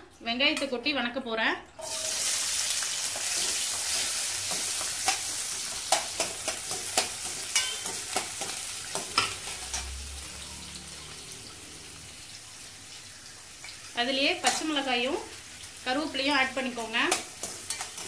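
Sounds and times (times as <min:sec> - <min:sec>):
shallots sizzling in hot oil: 0:01.8 - 0:18.0
metal spatula clinking against pan: 0:05.9 - 0:09.9.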